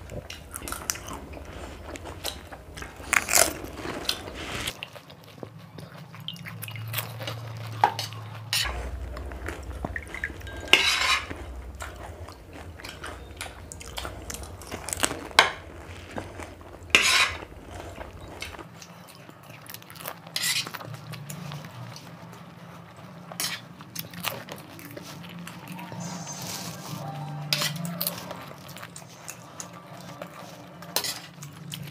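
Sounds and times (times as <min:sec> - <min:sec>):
low steady hum: 0:00.0 - 0:04.8, 0:05.5 - 0:19.6
chewing: 0:00.0 - 0:31.9
crisp shells crunching: 0:00.0 - 0:31.9
spoons clinking on plates: 0:07.8 - 0:19.2, 0:25.8 - 0:31.6.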